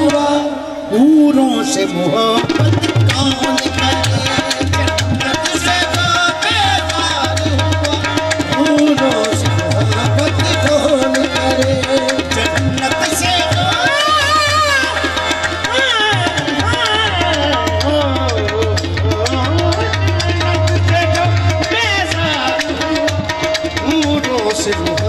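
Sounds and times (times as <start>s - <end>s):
man singing ornamented phrases: 0.0s - 23.1s
harmonium chords: 0.0s - 25.0s
hand drumming: 2.5s - 25.0s.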